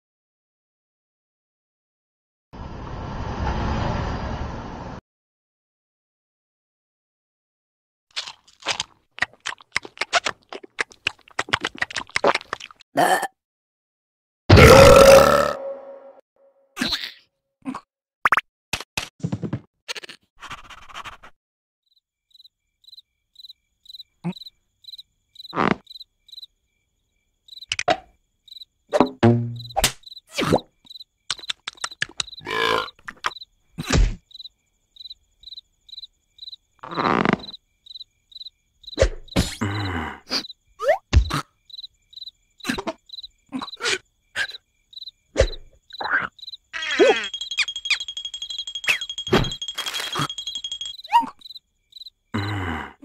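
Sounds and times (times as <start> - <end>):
cricket chirping: 21.9 - 52.8
cartoon knocks and slaps: 28.9 - 30.0, 33.8 - 34.2, 41.0 - 41.4
cartoon vocal sounds: 46.0 - 47.3.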